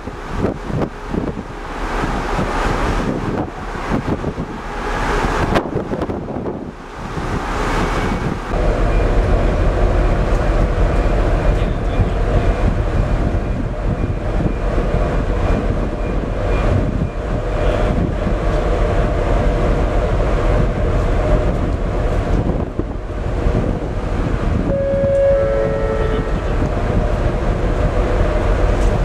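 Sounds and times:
ferry engine rumble: 0.0 - 29.0
wind buffeting microphone: 0.0 - 29.0
two steady tones: 24.7 - 26.9.

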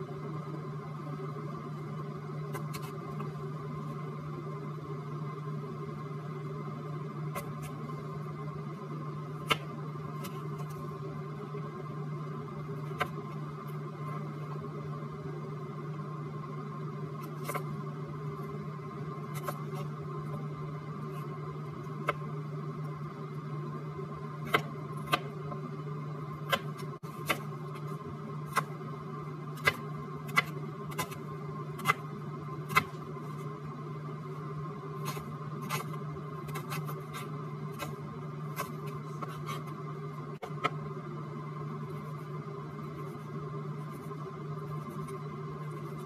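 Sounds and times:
steady low hum: 0.0 - 46.0
knife chopping on plastic board: 26.5 - 27.5, 29.6 - 31.2, 32.7 - 33.0.

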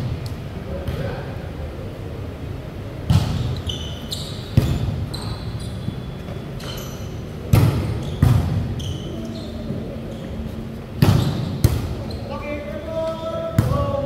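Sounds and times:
sneaker squeaks on court: 3.1 - 12.4.

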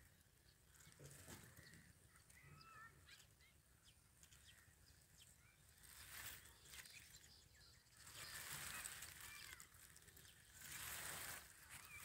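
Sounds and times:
distant bird chirps: 0.0 - 12.0.

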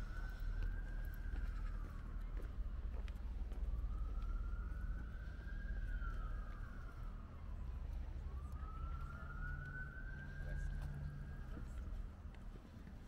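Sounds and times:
siren wailing: 3.6 - 12.1.

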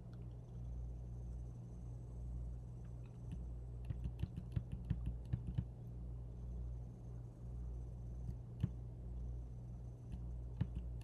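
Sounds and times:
steady low hum: 0.0 - 11.0
keyboard keys clicking: 3.3 - 5.7.

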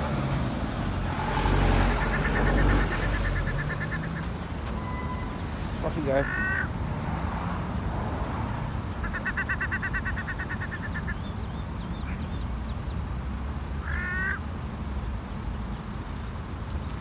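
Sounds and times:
ducks chattering calls: 1.3 - 4.6, 6.0 - 6.7, 9.0 - 11.2.

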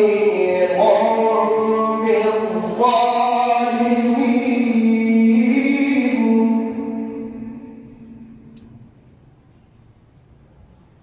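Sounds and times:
man chanting melodically: 0.0 - 8.5.

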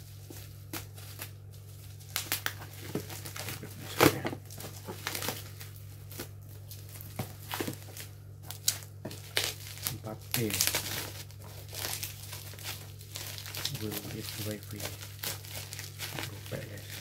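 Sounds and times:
bubble wrap crinkling: 0.0 - 17.0
steady low hum: 0.0 - 17.0.

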